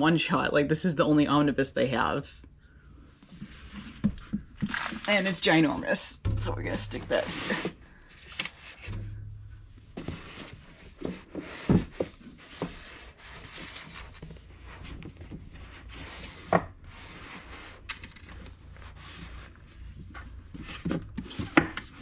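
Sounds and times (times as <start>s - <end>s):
books rubbing on shelf: 10.0s - 17.8s.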